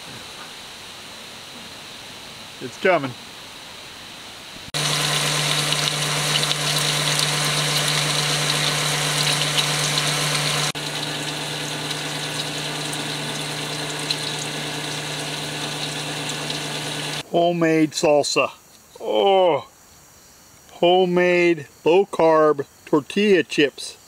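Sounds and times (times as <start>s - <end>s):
oil sizzling and crackling: 4.7s - 17.2s
steady low hum: 4.8s - 17.2s.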